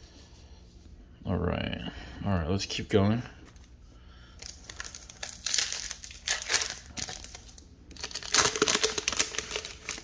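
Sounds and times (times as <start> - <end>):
foil wrapper crinkling: 4.3 - 10.0.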